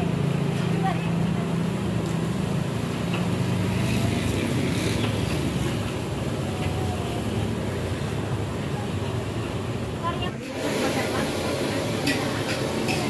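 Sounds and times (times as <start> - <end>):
faint voices: 5.7 - 13.0.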